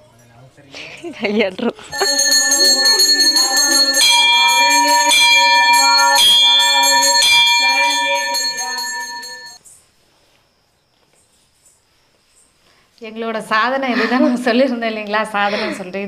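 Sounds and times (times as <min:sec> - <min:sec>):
bell ringing: 0:01.9 - 0:09.6.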